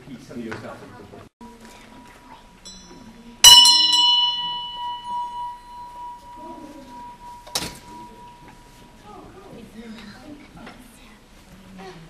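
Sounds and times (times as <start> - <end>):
metal bell ringing: 2.6 - 8.8.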